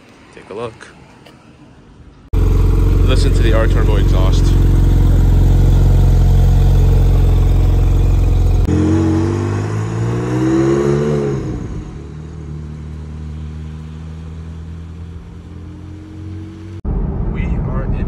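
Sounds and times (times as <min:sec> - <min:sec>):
car engine idling: 0:02.3 - 0:08.7
car accelerating away: 0:02.4 - 0:17.2.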